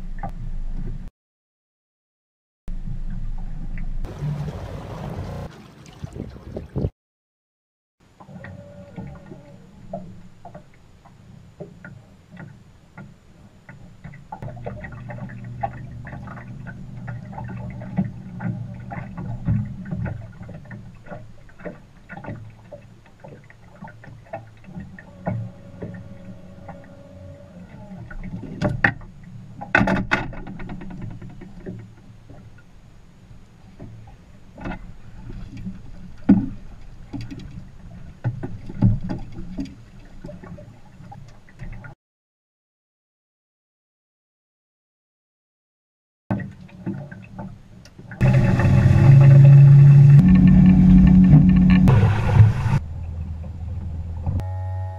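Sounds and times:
low boat rumble: 2.7 - 6.9, 8.0 - 42.0, 46.3 - 54.9
clicks and knocks on hull: 9.9 - 26.0, 28.1 - 32.6, 33.8 - 42.0.

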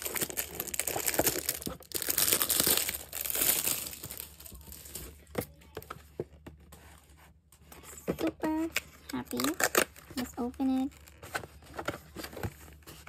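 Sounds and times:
plastic wrapping crinkling and tearing: 0.0 - 5.5, 8.4 - 13.0.

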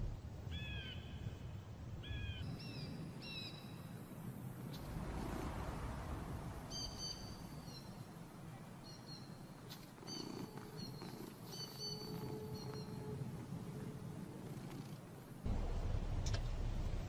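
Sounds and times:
continuous low rumble: 0.0 - 17.0
animal whistled calls: 10.1 - 13.1.

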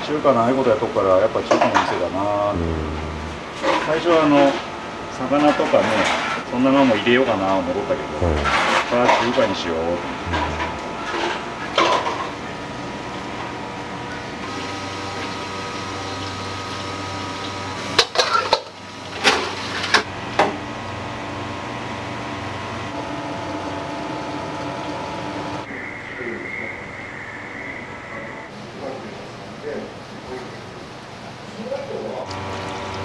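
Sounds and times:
kitchen equipment hum: 0.0 - 30.8, 31.6 - 33.0
cookware and utensils clattering: 18.0 - 20.0.

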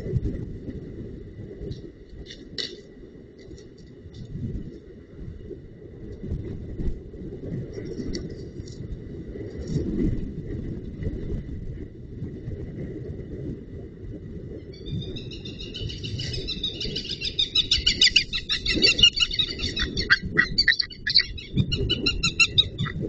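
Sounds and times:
low rumble: 0.0 - 23.0
eagle yelping calls: 14.8 - 23.0.

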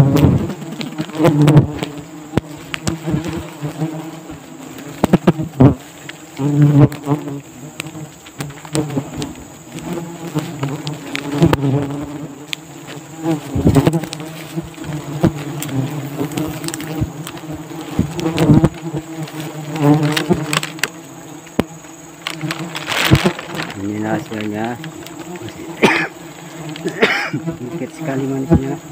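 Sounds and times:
wasps buzzing: 0.0 - 28.9
footsteps on dry leaves: 12.8 - 21.0, 22.0 - 27.0.

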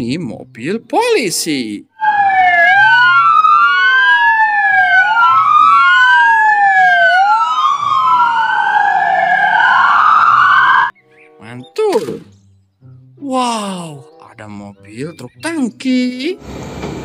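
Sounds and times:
police sirens wailing: 1.9 - 10.9.

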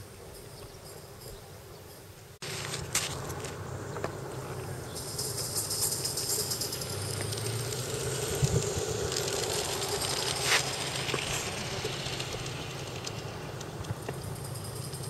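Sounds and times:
wheels rumbling on rails: 0.0 - 15.0
steam locomotive chuffing: 3.6 - 15.0
steam hissing: 4.6 - 15.0.

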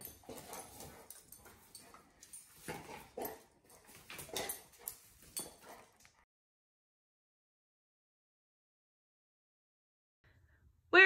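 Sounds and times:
movement on hardwood floor: 0.0 - 6.2.

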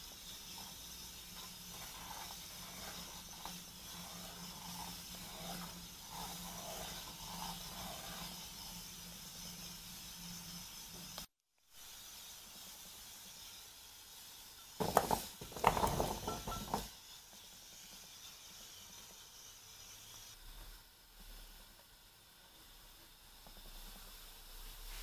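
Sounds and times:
pan hissing: 0.0 - 25.0
rice cakes clattering into pan: 14.8 - 16.9.

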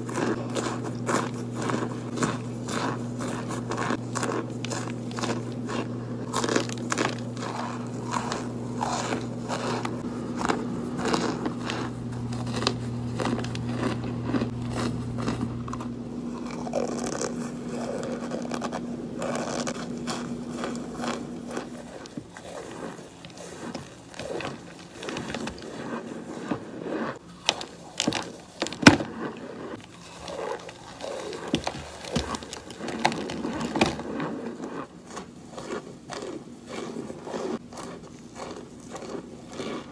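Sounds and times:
low hum: 0.0 - 26.9
crunchy chewing: 0.0 - 39.9.

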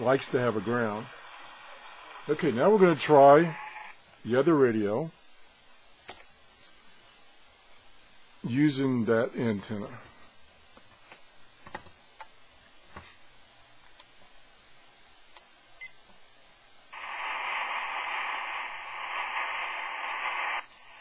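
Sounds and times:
radio static: 0.0 - 5.1, 17.0 - 21.0.

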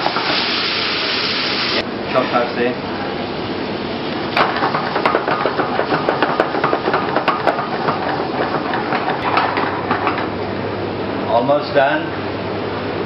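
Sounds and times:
prawns sizzling in a pan: 0.0 - 1.8
spatula stirring: 4.6 - 9.3.

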